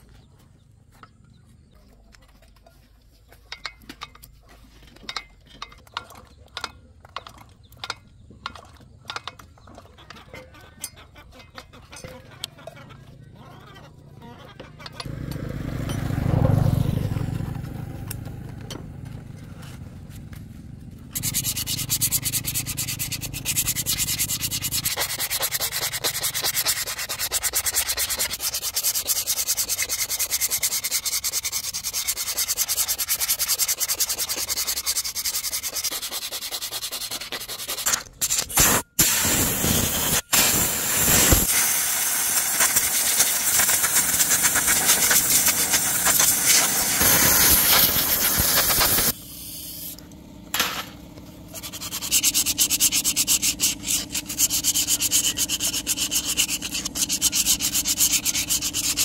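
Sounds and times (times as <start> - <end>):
power tool sanding metal: 21.1 - 50.0, 50.6 - 59.0.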